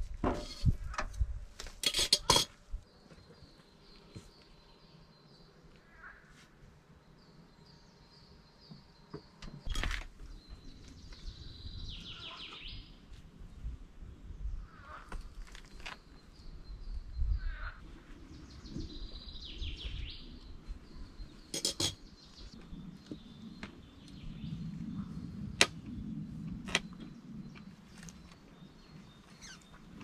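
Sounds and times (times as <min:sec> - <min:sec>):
dishes clinking and knocking: 0:01.8 - 0:02.6, 0:21.5 - 0:22.0
small birds chirping: 0:02.8 - 0:06.2, 0:06.8 - 0:13.2, 0:14.1 - 0:30.0.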